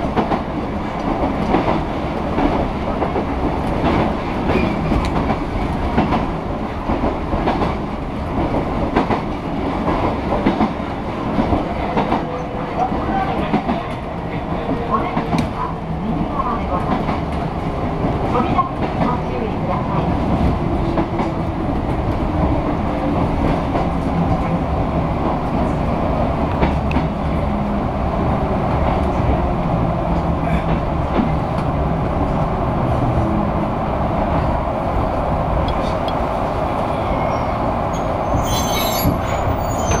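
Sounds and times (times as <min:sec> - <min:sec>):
train wheels rumbling on rails: 0:00.0 - 0:40.0
wheel and brake squeal: 0:37.0 - 0:40.0.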